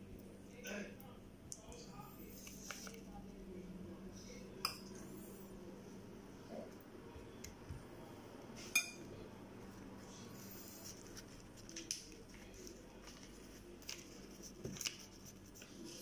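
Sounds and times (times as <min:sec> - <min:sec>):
low steady hum: 0:00.0 - 0:16.0
spoon clinking: 0:08.8 - 0:09.0.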